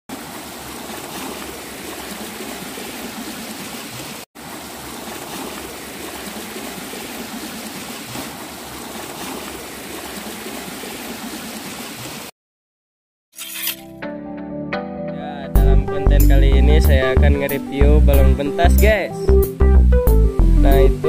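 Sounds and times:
floodwater rushing: 0:00.1 - 0:12.3.

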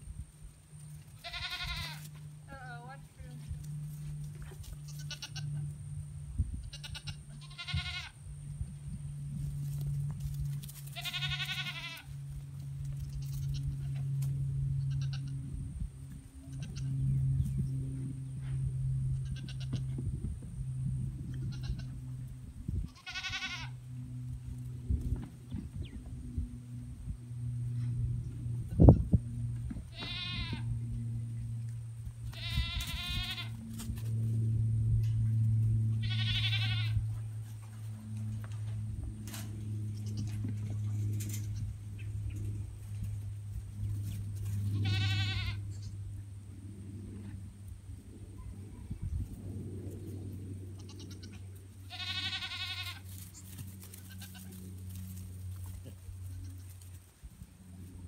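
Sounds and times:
steady low hum: 0:00.0 - 0:58.0
goat bleating: 0:01.2 - 0:03.1, 0:04.7 - 0:05.6, 0:06.6 - 0:08.2, 0:10.9 - 0:12.3, 0:13.0 - 0:14.1, 0:14.8 - 0:15.5, 0:16.4 - 0:17.1, 0:19.1 - 0:20.0, 0:21.3 - 0:22.1, 0:22.9 - 0:23.9, 0:29.7 - 0:30.8, 0:32.2 - 0:33.7, 0:35.9 - 0:37.1, 0:39.8 - 0:40.6, 0:44.5 - 0:46.0, 0:50.7 - 0:54.7, 0:55.8 - 0:56.8.

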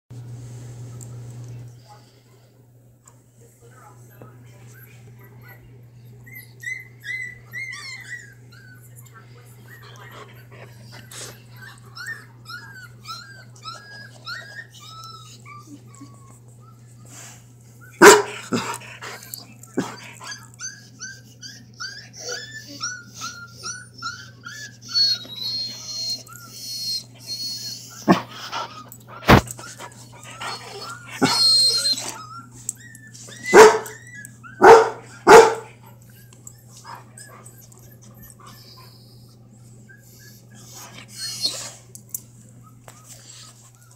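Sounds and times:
puppies whimpering and yipping: 0:04.8 - 0:18.0, 0:18.6 - 0:43.9
dog barking loudly: 0:18.0 - 0:18.4, 0:33.5 - 0:33.9, 0:34.6 - 0:35.7.

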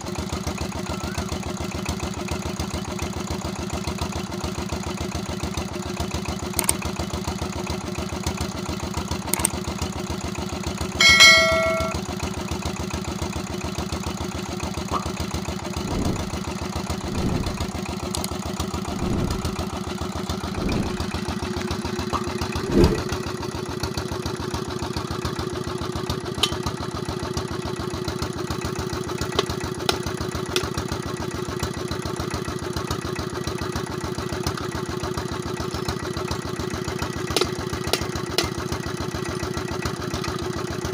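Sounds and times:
diesel engine running: 0:00.1 - 0:40.9
bell-like ding: 0:11.0 - 0:12.0.

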